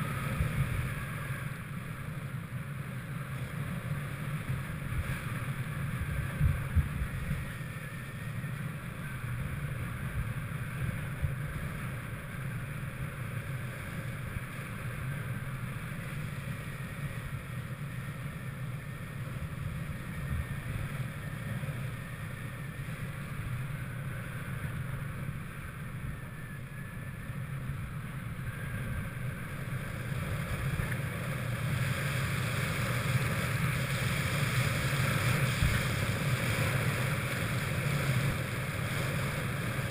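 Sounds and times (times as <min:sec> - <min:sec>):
wind rushing over microphone: 0:00.0 - 0:01.9, 0:04.2 - 0:12.5, 0:28.5 - 0:39.9.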